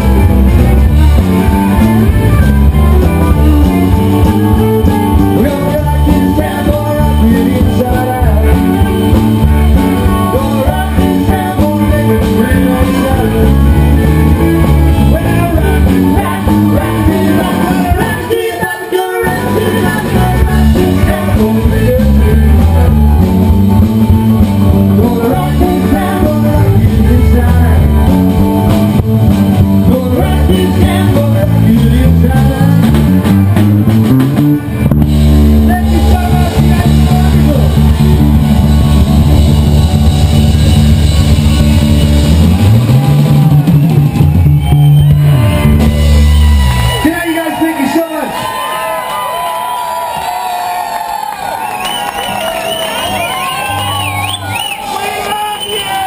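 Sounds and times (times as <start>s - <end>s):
rockabilly band playing: 0.0s - 56.0s
vocals: 2.4s - 23.9s, 24.6s - 33.3s, 35.4s - 38.4s, 47.0s - 48.3s.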